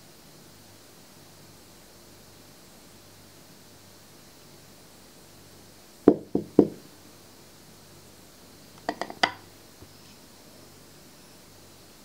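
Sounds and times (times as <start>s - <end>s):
glass jars knocking on countertop: 6.1s - 6.8s, 8.8s - 9.4s
glass jars clinking: 8.9s - 9.4s.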